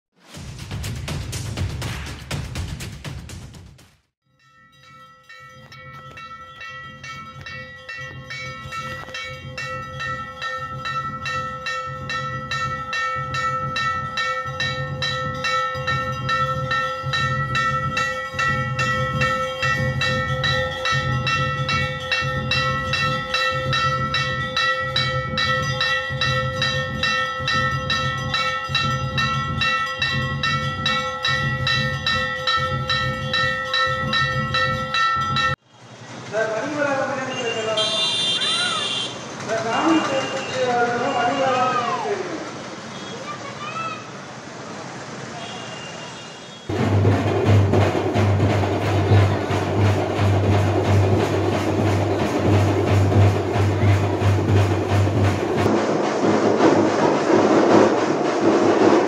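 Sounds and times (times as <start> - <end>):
low drum-like beat: 0.2 - 4.0, 46.7 - 59.0
bells ringing rapidly: 4.2 - 35.7, 46.7 - 55.7.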